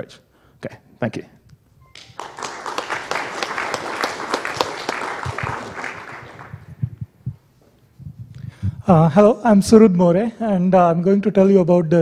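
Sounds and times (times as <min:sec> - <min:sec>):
audience applauding: 0:01.9 - 0:07.0.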